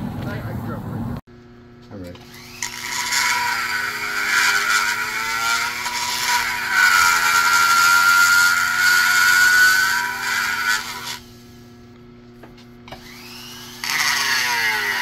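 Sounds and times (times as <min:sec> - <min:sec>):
die grinder whining: 0:02.2 - 0:11.4, 0:12.9 - 0:15.0.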